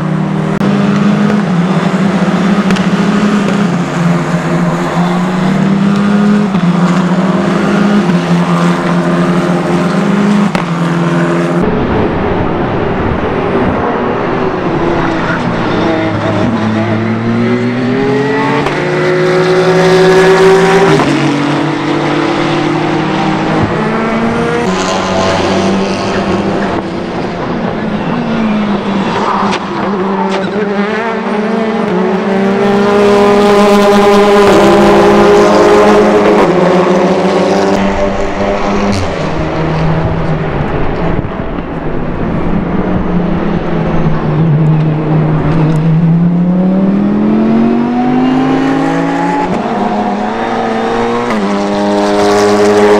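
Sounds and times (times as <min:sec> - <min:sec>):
racing car engines accelerating: 0:00.0 - 0:52.9.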